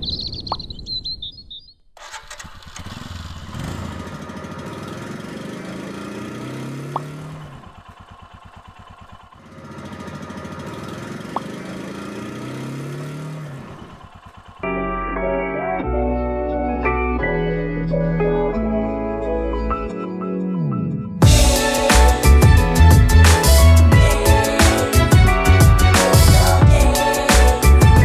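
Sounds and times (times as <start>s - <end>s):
high chirping: 0.0s - 1.9s
motorcycle engine revving: 2.0s - 15.0s, 20.6s - 28.0s.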